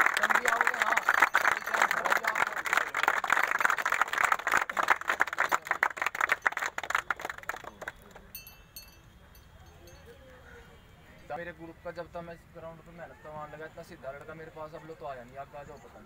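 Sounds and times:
people clapping: 0.0s - 8.6s.

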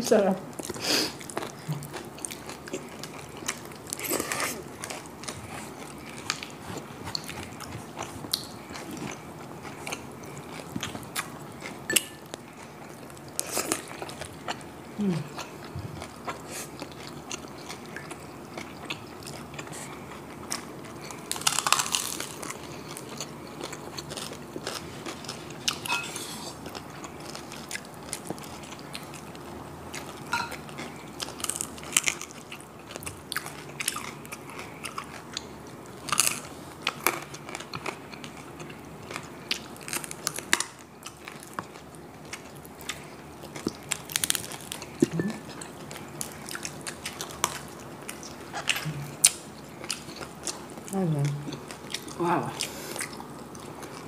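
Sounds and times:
chewing and biting food: 0.5s - 54.0s
crunching crispy skin: 20.6s - 29.4s, 30.0s - 50.9s.

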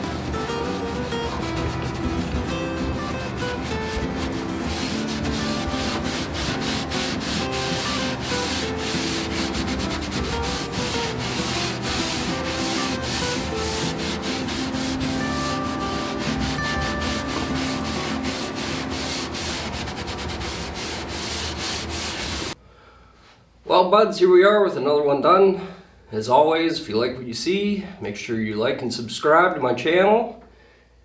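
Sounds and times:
soft background music: 0.0s - 20.8s
pad scrubbing wood: 0.0s - 22.6s.

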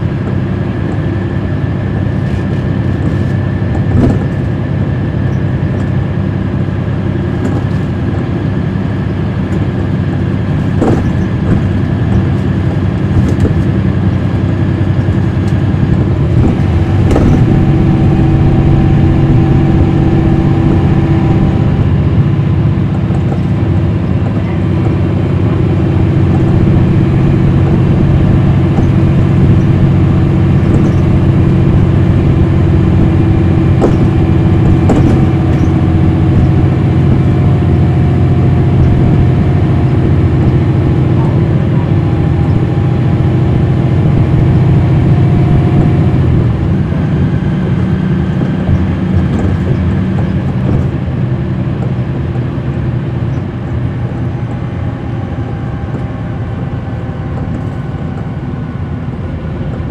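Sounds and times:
bus diesel engine: 0.0s - 59.9s
knocks and rattles: 10.7s - 12.4s, 33.8s - 35.8s.

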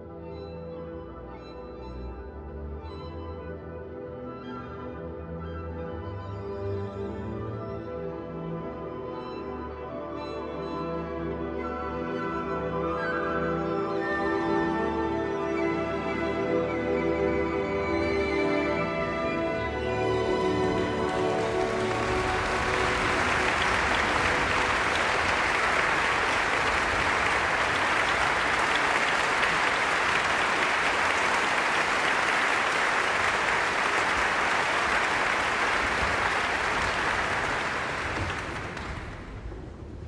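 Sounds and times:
audience applauding: 19.8s - 39.6s.

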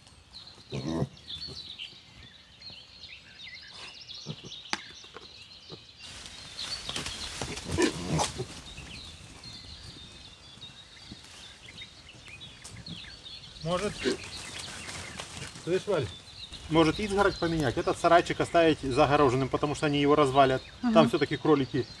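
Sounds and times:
small birds chirping: 0.0s - 22.0s
pigs grunting: 0.7s - 1.6s, 7.5s - 8.6s.

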